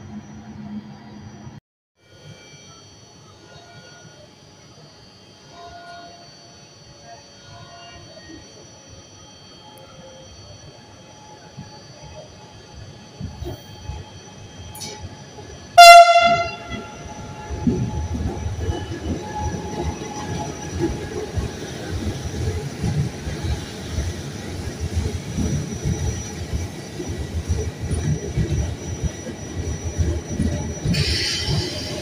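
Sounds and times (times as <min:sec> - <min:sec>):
train rumbling past: 0:14.6 - 0:32.0
train horn blast: 0:15.8 - 0:17.3.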